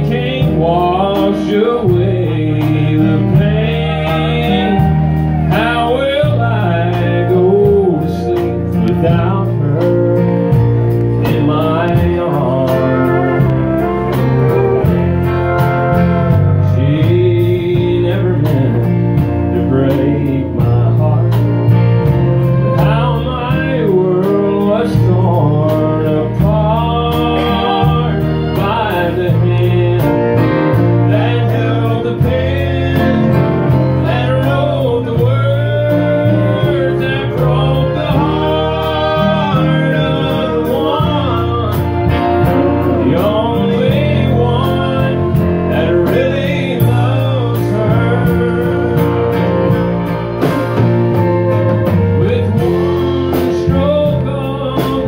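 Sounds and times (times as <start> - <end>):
bass: 0.0 - 55.0
drums: 0.0 - 55.0
gliding lead melody: 0.0 - 55.0
strummed acoustic guitars: 0.0 - 55.0.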